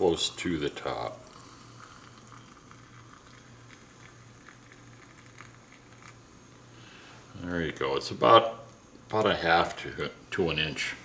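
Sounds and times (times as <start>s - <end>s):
water trickling into a glass jar: 0.1s - 6.6s.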